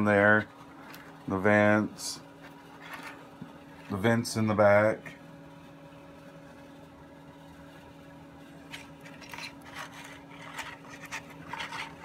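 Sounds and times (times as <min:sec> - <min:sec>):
steady low hum: 0:00.0 - 0:12.0
model scratching and rubbing: 0:02.4 - 0:03.9, 0:08.7 - 0:12.0.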